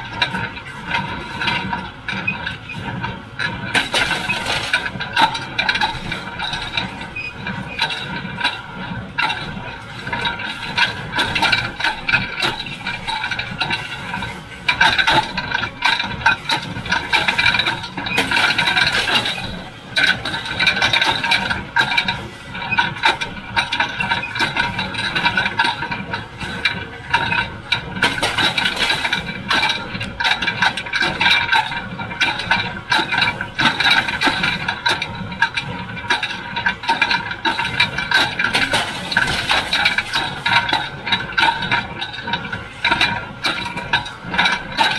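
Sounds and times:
tractor engine: 0:02.9 - 0:44.9
baler clattering and knocking: 0:22.8 - 0:44.9.

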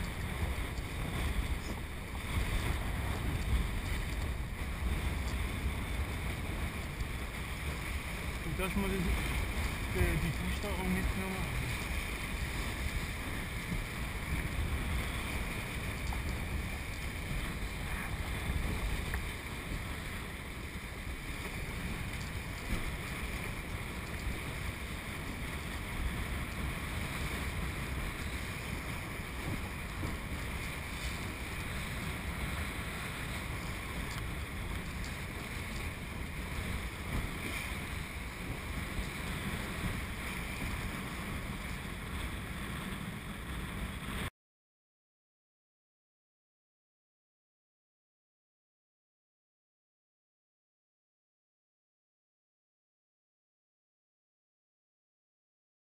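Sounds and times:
water splashing along hull: 0:00.0 - 0:44.3
wind buffeting microphone: 0:00.0 - 0:44.3.

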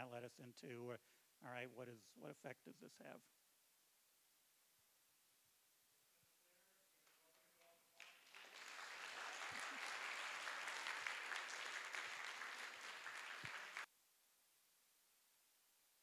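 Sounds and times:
audience applauding: 0:07.0 - 0:13.9.

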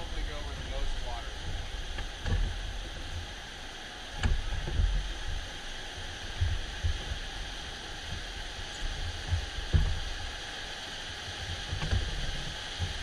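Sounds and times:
whitewater rapids rushing: 0:00.0 - 0:13.0.

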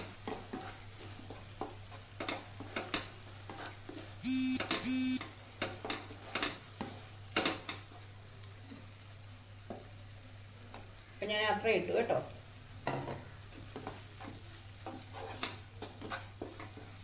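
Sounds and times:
spatula scraping a pan: 0:00.0 - 0:04.2, 0:05.6 - 0:08.0, 0:13.0 - 0:17.0
faint sizzle: 0:00.0 - 0:17.0
short electronic beeps: 0:04.2 - 0:05.2.

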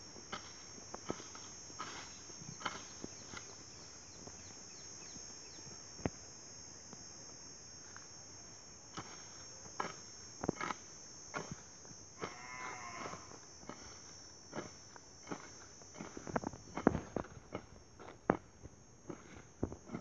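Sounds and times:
hoe blade chopping into dry soil: 0:00.2 - 0:03.6, 0:08.9 - 0:20.0.

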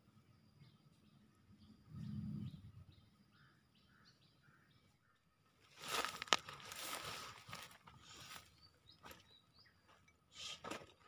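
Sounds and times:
dry grass rustling and crackling: 0:05.6 - 0:09.2
sharp crack of vegetation: 0:05.7 - 0:07.9.

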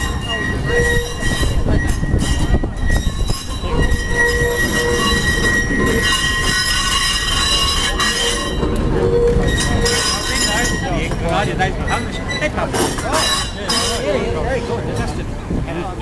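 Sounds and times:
wheel squealing against track: 0:00.0 - 0:15.2
tram wheels rumbling on rails: 0:00.0 - 0:16.0.

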